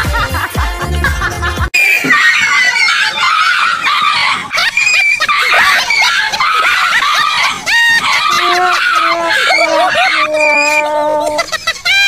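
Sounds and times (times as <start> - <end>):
music: 0.0 - 1.8
high-pitched shrieking cries: 1.8 - 12.0
person laughing: 4.5 - 12.0.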